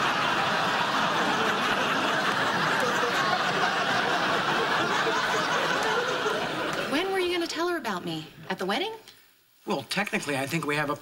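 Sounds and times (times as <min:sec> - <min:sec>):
audience laughing: 0:00.0 - 0:07.1.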